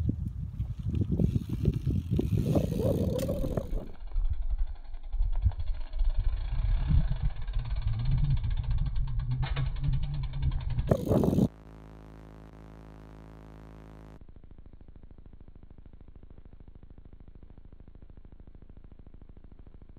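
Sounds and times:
wind buffeting microphone: 0.0s - 11.5s.

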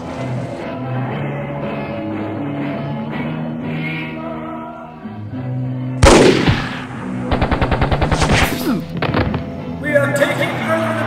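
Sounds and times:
sombre choral music: 0.0s - 11.0s
loud gunshot: 6.0s - 9.4s
machine-gun fire: 6.0s - 9.4s.

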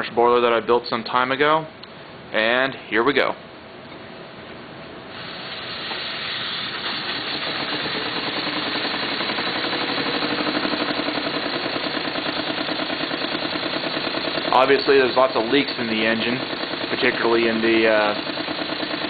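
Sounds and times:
steam engine chuffing: 5.1s - 19.0s
steam hissing: 5.1s - 19.0s.

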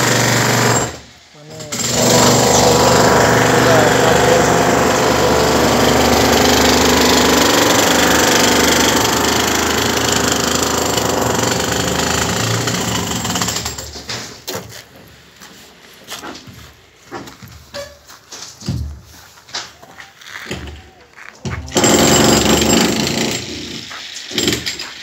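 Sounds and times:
demolition hammer breaking concrete: 0.0s - 1.0s, 1.6s - 14.4s, 21.5s - 25.0s.

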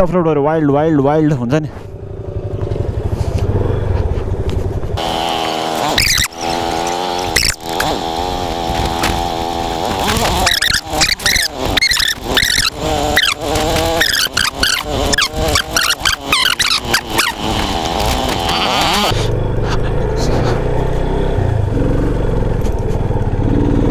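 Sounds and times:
motorcycle engine revving: 1.8s - 23.9s
knocks from rough ground: 6.9s - 19.1s.

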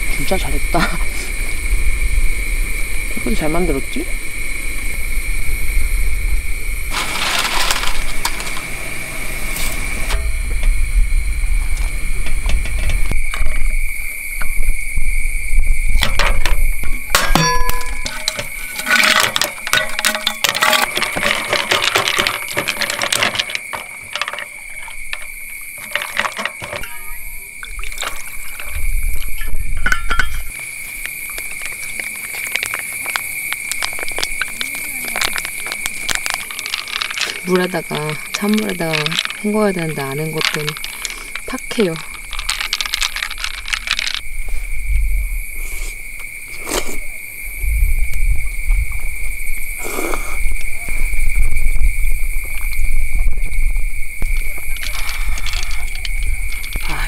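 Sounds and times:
rustle: 3.8s - 57.0s
ice clinking: 6.9s - 8.8s, 16.0s - 44.3s, 54.3s - 57.0s
liquid pouring over ice: 17.5s - 30.5s, 31.3s - 44.2s.

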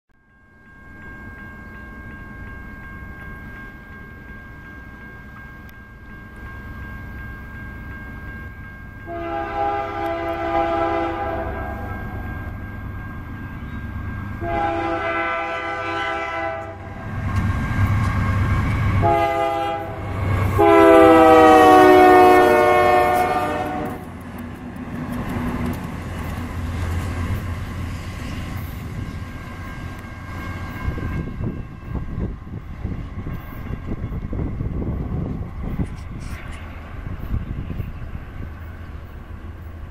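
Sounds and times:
locomotive engines and wheels rumbling: 0.2s - 39.9s
locomotive horn blasts: 9.1s - 12.2s, 14.4s - 17.0s, 18.9s - 24.1s.

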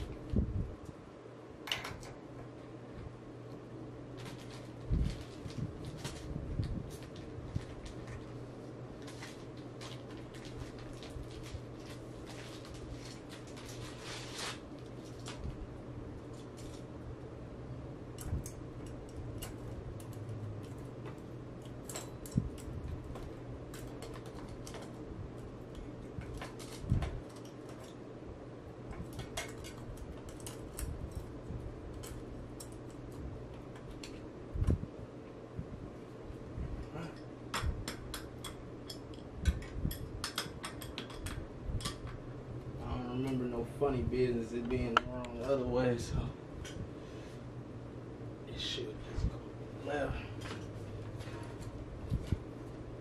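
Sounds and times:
metal tool clicks and taps: 37.5s - 42.2s.

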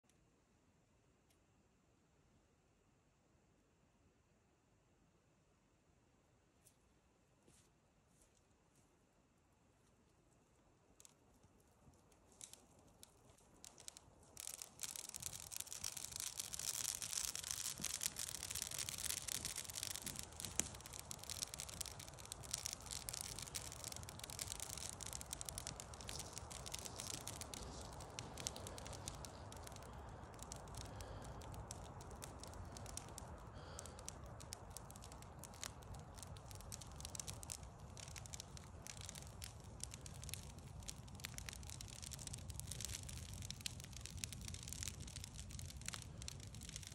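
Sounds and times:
campfire crackling and popping: 11.0s - 46.9s
low rumble of flames: 11.0s - 46.9s.

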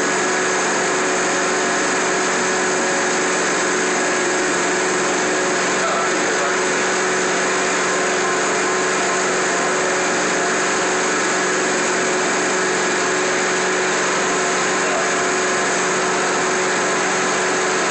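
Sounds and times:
carpet cleaner running: 0.0s - 17.9s.

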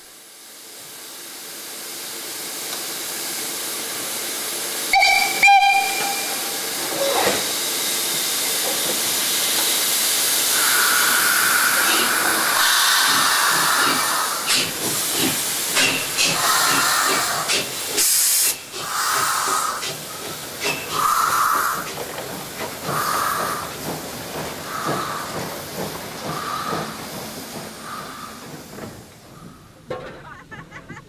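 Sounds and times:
steam hissing: 0.0s - 29.9s
steam whistle toots: 4.9s - 7.4s.

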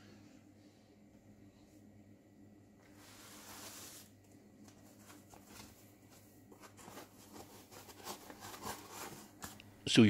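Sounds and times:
foam packaging rustling: 2.9s - 9.6s.

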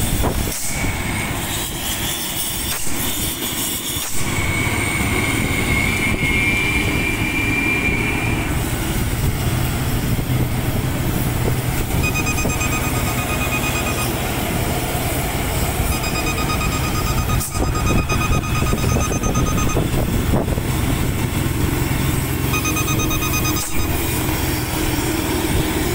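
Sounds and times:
vehicle engine and road noise: 0.0s - 25.9s
thin whine: 0.6s - 25.9s
fast high-pitched beeping: 11.8s - 14.9s, 15.6s - 20.2s, 22.4s - 24.1s.

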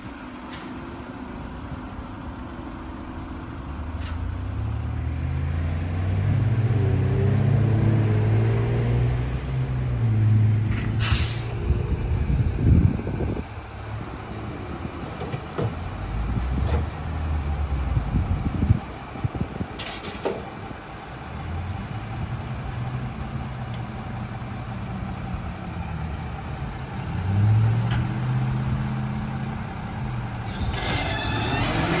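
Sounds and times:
air brake hiss: 10.9s - 11.6s
engine idling: 12.2s - 27.0s.

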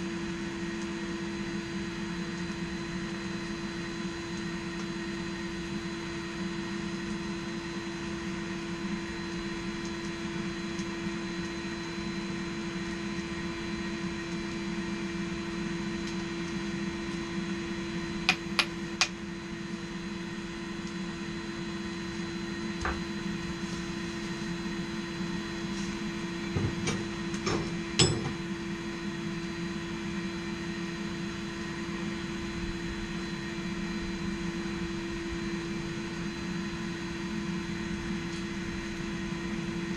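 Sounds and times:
air blower humming: 18.2s - 19.2s, 22.1s - 28.6s.

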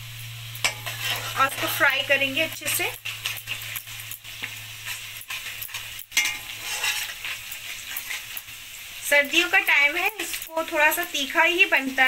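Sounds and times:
onions sizzling in oil: 0.0s - 12.0s
utensil scraping pan: 0.6s - 8.6s.

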